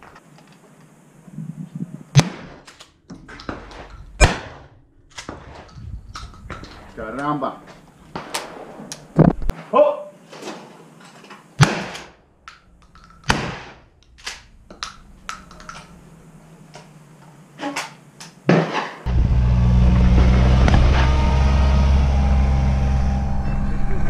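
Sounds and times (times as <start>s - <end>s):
shotgun shots: 2.1s - 2.7s, 3.7s - 5.6s, 11.6s - 12.2s, 13.3s - 13.9s
utility vehicle engine drone: 19.1s - 24.0s.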